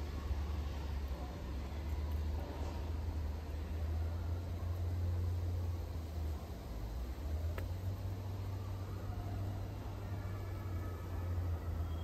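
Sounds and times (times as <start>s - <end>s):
low background hum: 0.0s - 12.0s
faint high whistling: 8.2s - 12.0s.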